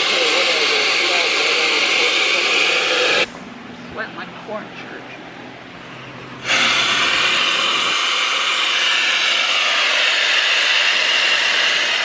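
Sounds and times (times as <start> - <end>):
compressed air hissing from nozzle: 0.0 - 3.3, 6.4 - 12.0.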